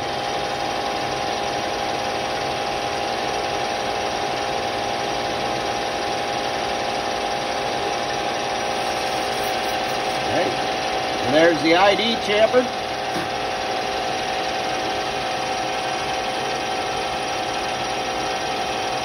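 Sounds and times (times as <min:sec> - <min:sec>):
lathe spindle whine: 0:00.0 - 0:19.0
tool cutting plastic: 0:08.6 - 0:10.3.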